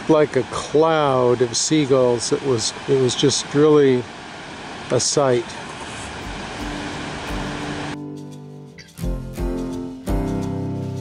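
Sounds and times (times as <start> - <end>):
surf rushing: 0.0 - 8.0
music with long held notes: 6.5 - 11.0.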